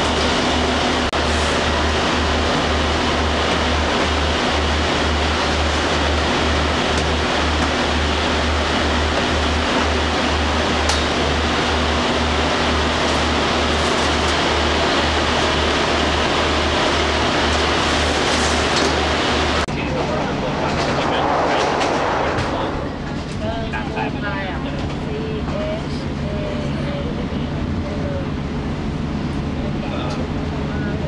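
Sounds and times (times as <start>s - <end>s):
diesel railcar engines idling: 0.0s - 21.8s, 22.6s - 31.0s
low pulsing throb: 14.5s - 30.9s.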